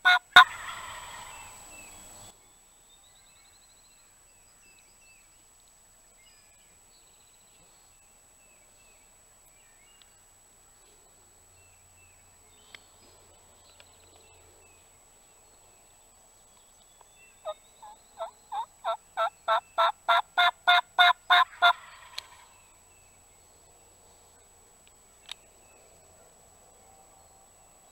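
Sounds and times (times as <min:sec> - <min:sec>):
turkey yelps: 0:00.0 - 0:01.6, 0:17.4 - 0:22.5.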